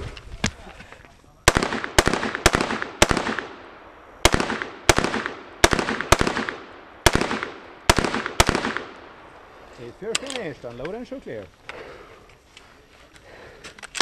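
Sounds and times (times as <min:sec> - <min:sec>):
rifle shots with echo: 0:01.4 - 0:10.4.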